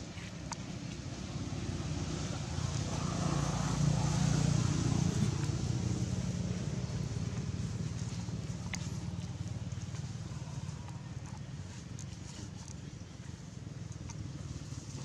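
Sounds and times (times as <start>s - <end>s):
vehicle engine passing by: 1.3s - 12.4s.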